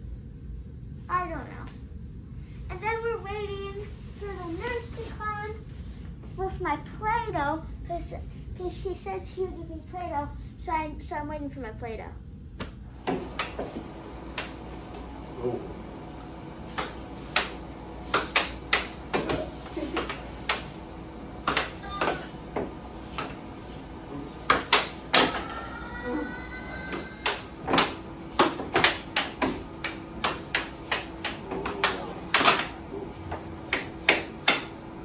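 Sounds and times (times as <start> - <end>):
steady hum: 0.0 - 35.0
air hockey puck clacks: 14.3 - 14.6, 16.7 - 20.8, 21.4 - 23.4, 24.4 - 25.5, 26.9 - 34.8.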